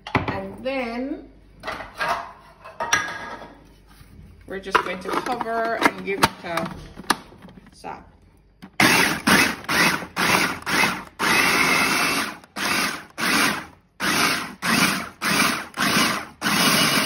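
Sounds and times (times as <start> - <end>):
food processor chopping: 8.8 - 17.0.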